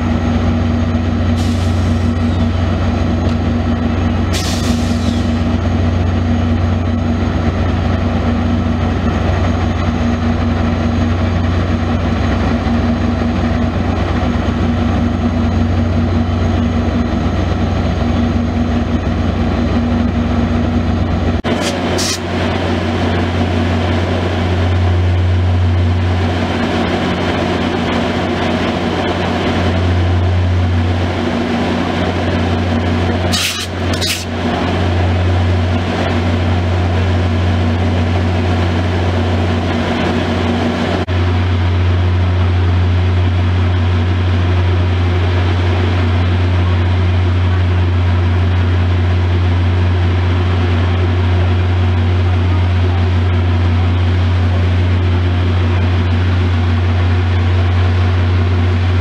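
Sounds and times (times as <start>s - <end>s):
diesel locomotive engine drone: 0.0s - 59.0s
short hisses: 33.3s - 34.3s.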